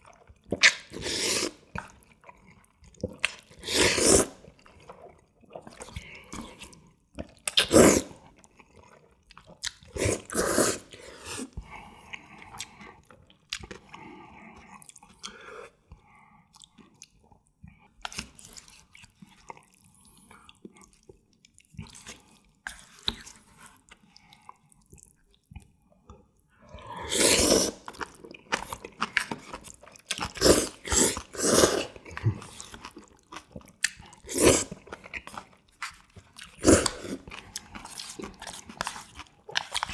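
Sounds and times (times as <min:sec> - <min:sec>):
soft chewing: 0:00.0 - 0:03.6, 0:04.3 - 0:39.9
person slurping noodles: 0:00.6 - 0:01.7, 0:03.1 - 0:04.5, 0:07.5 - 0:08.2, 0:09.9 - 0:12.1, 0:26.7 - 0:28.2, 0:30.2 - 0:32.9, 0:34.1 - 0:34.9, 0:36.6 - 0:39.9.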